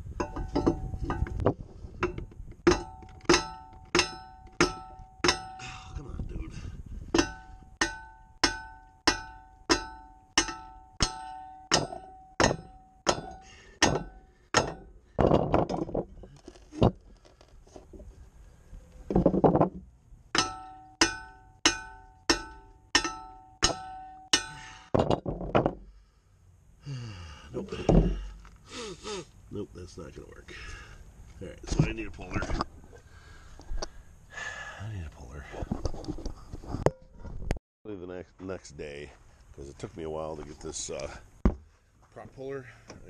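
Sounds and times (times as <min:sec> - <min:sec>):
hammer striking metal propeller: 0:02.0 - 0:05.6, 0:07.1 - 0:14.9, 0:20.3 - 0:24.6.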